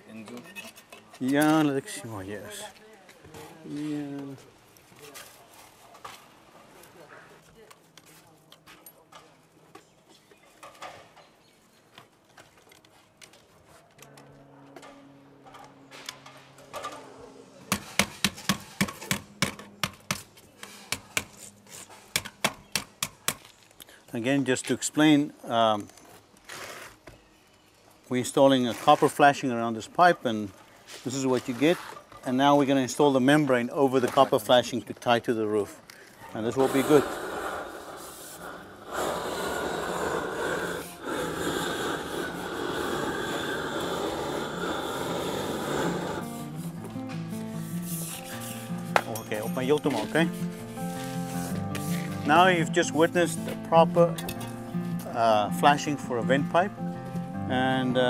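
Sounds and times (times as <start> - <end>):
torch flame rushing: 36.4 - 46.6.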